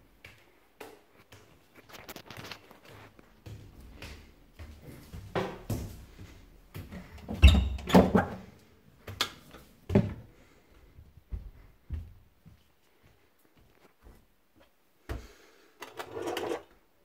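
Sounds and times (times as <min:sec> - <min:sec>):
footsteps on tiled stairs: 0:00.0 - 0:15.4.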